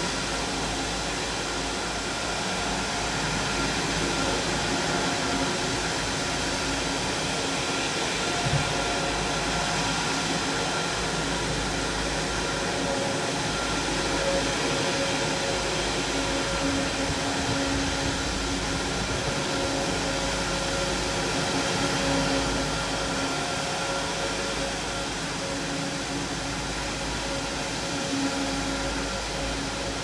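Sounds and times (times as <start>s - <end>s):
jet engines running: 0.0s - 30.0s.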